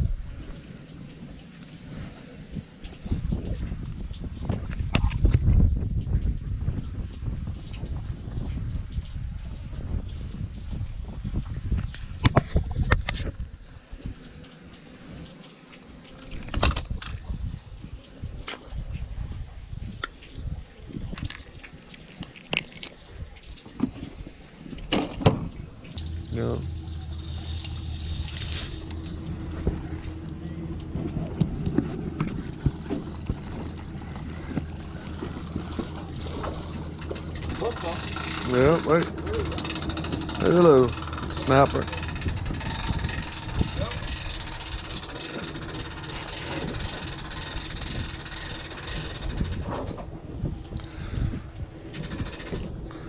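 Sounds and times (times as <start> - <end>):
wind rumbling on microphone: 0.0 - 53.0
clicks and knocks from gear: 16.1 - 17.2
steady low hum: 23.2 - 53.0.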